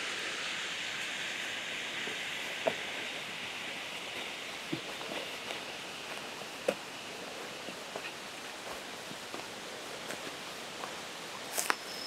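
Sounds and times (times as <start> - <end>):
leaves rustling: 0.0 - 12.0
steady hiss: 0.0 - 12.0
footsteps on leafy dirt trail: 4.0 - 11.9.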